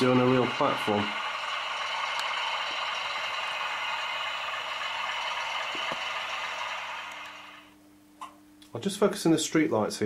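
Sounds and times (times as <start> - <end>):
model trains whirring rattle: 0.0 - 7.7.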